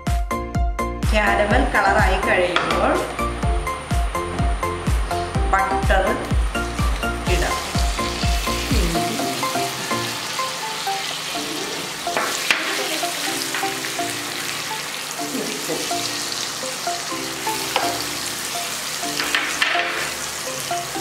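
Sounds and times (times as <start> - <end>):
butter sizzling in a frying pan: 6.0 - 21.0.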